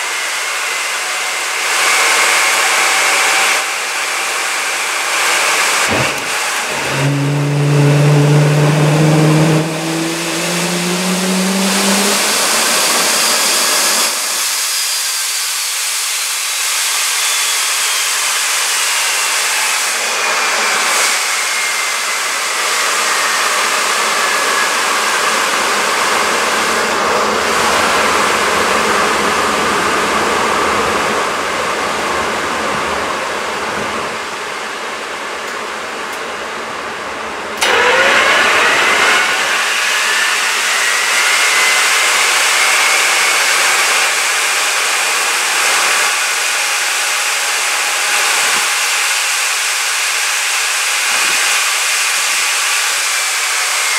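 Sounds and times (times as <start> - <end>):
high whine falling: 5.6 - 14.7
air rushing through jet engine: 5.6 - 15.1
low whine rising: 5.8 - 14.8.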